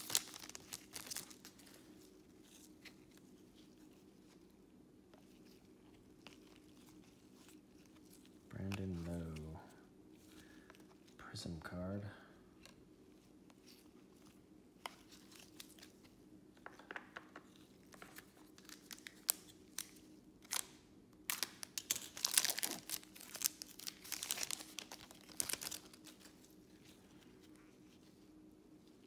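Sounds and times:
foil wrapper tearing and crinkling: 0:00.0 - 0:01.8, 0:18.1 - 0:26.4.

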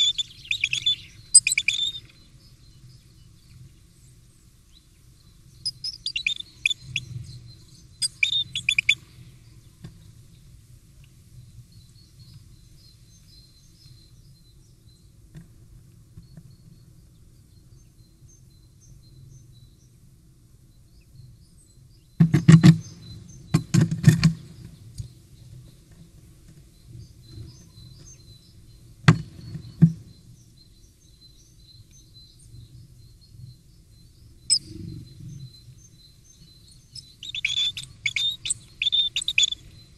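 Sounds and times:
bird chirping: 0:00.0 - 0:09.0, 0:26.8 - 0:39.9
faint birdsong: 0:00.0 - 0:39.9.

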